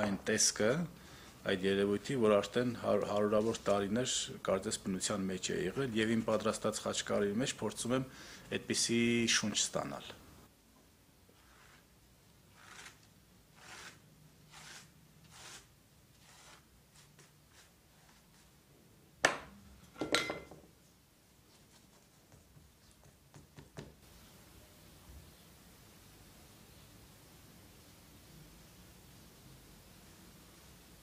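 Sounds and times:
paintbrush swishing on paper: 11.3s - 12.0s, 12.6s - 18.6s.

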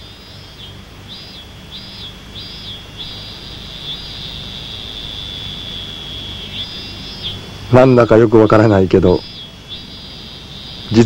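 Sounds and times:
high-pitched chirping call: 0.0s - 11.0s
low steady hum: 0.0s - 11.0s.

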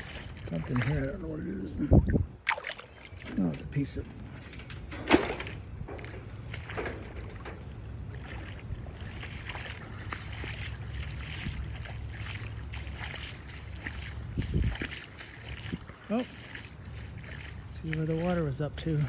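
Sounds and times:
footsteps sloshing through water: 0.0s - 19.0s
wind on microphone: 1.6s - 2.5s, 10.5s - 12.0s, 13.5s - 16.0s.

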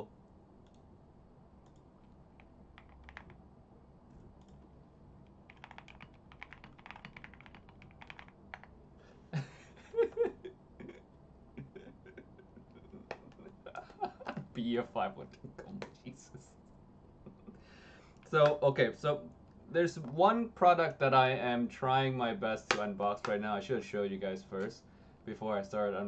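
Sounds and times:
computer keyboard typing: 1.6s - 3.4s, 5.5s - 8.7s.

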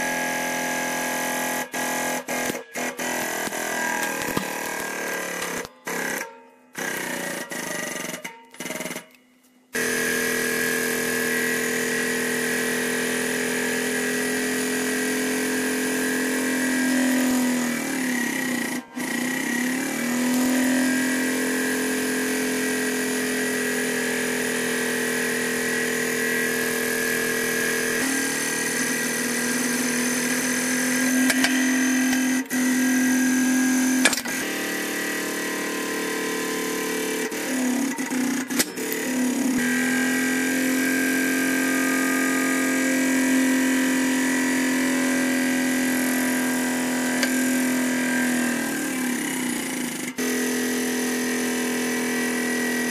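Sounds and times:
hydraulic pump motor humming: 0.0s - 9.2s, 9.8s - 52.9s.

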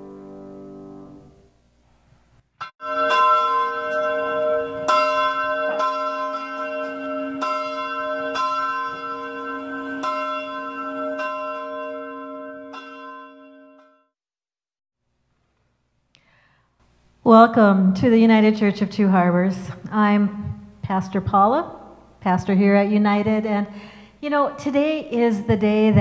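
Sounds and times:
church bell ringing: 2.8s - 14.1s.

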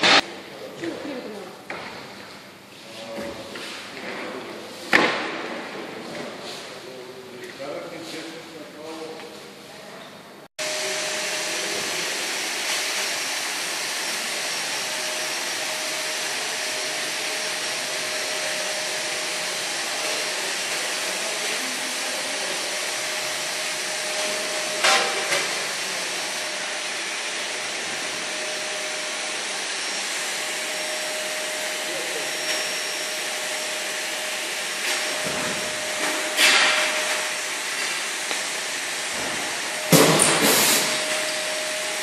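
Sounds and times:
blower machine running: 0.0s - 1.8s, 10.6s - 42.0s.

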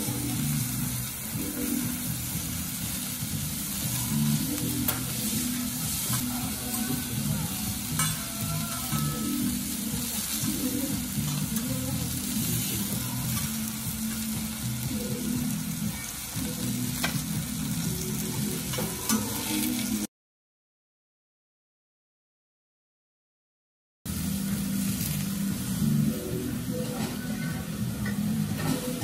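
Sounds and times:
meat sizzling on a griddle: 0.0s - 20.0s, 24.1s - 27.0s
metal cutlery clicking on hot plate: 8.0s - 8.2s.

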